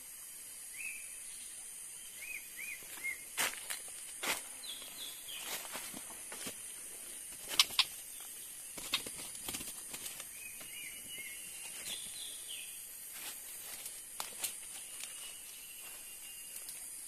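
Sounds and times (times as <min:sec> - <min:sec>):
steady high hiss: 0:00.0 - 0:17.0
bird chirps: 0:00.7 - 0:03.3, 0:04.6 - 0:05.7, 0:07.5 - 0:09.4, 0:10.0 - 0:12.9, 0:14.7 - 0:17.0
sharp clicks: 0:07.5 - 0:07.9.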